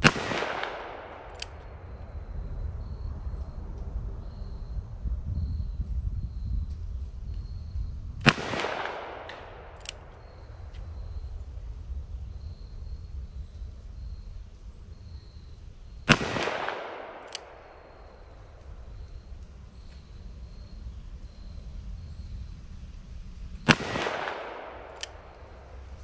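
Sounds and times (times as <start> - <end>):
revolver gunshots with echo: 0.0 - 2.0, 8.2 - 10.4, 16.1 - 18.6, 23.7 - 25.7.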